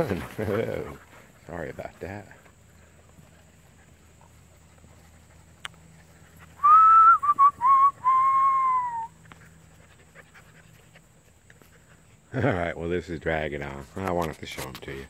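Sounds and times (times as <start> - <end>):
person whistling: 6.6 - 9.1.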